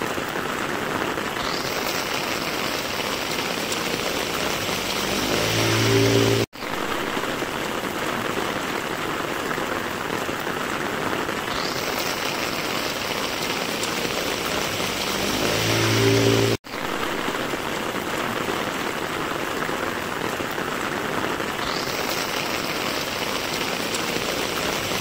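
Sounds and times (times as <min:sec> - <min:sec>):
heavy rain on asphalt: 0:00.0 - 0:25.0
motor scooter passing: 0:03.6 - 0:06.5, 0:13.8 - 0:16.6.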